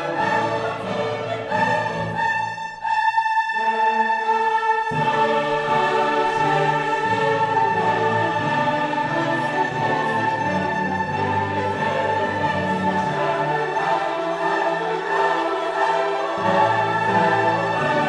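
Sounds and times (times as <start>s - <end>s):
choir singing: 0.0s - 18.0s
orchestral music: 0.0s - 18.0s.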